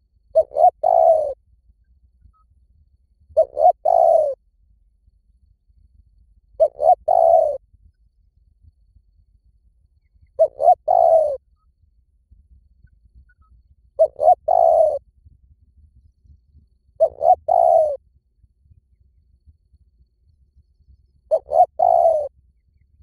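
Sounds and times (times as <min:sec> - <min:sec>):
dove cooing: 0:00.3 - 0:01.4, 0:03.4 - 0:04.4, 0:06.6 - 0:07.6, 0:10.4 - 0:11.4, 0:14.0 - 0:15.0, 0:17.0 - 0:18.0, 0:21.3 - 0:22.3.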